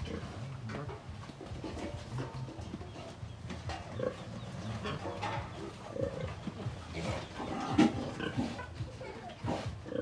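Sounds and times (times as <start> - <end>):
sows grunting: 3.9 - 10.0.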